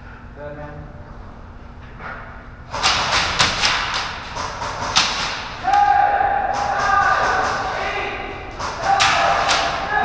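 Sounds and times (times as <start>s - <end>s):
airsoft gunfire: 2.7s - 5.9s, 6.5s - 10.0s.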